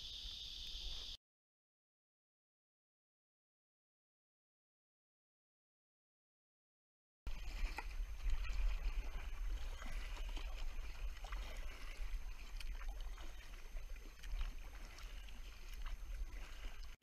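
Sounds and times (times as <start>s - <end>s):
paddle pulling through water: 7.3s - 17.0s.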